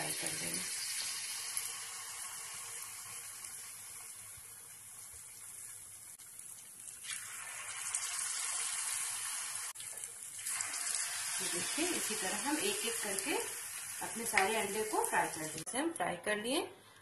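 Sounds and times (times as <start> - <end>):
food deep-frying in oil: 0.0 - 15.8.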